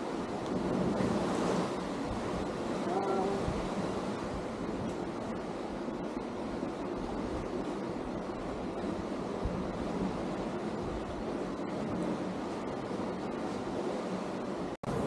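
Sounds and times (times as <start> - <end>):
surf washing against rocks: 0.0 - 15.0
wind buffeting microphone: 0.0 - 15.0.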